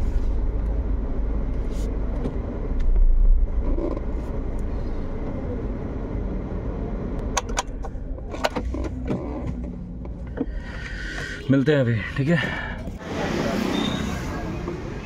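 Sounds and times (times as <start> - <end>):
vehicle engine rumbling: 0.0 - 15.0
sharp clicks and knocks: 7.2 - 10.5.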